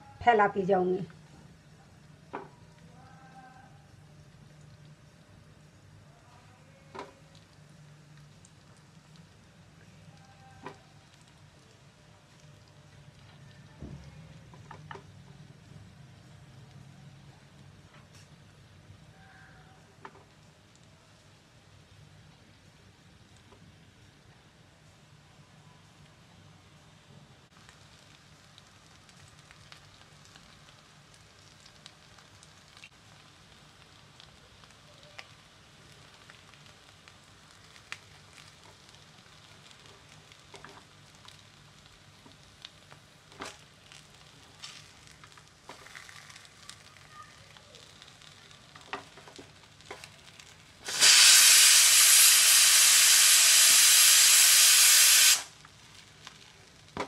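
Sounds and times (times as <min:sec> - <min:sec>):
oil crackling and popping: 0:01.0 - 0:19.1, 0:19.8 - 0:25.2, 0:27.5 - 0:57.0
loud even sizzle: 0:26.4 - 0:57.0.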